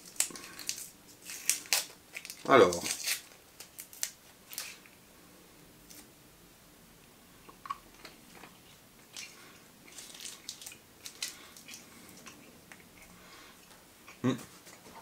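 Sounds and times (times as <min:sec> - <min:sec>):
candy wrapper crinkling: 0:00.0 - 0:04.9, 0:09.2 - 0:12.3.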